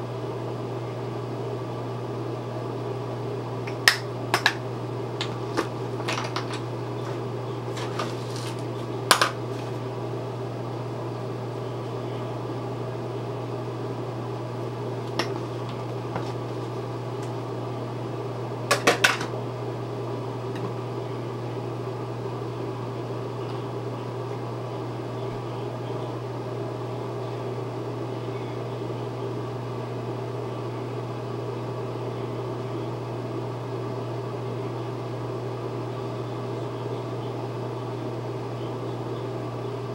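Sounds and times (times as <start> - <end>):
fan humming: 0.0 - 39.9.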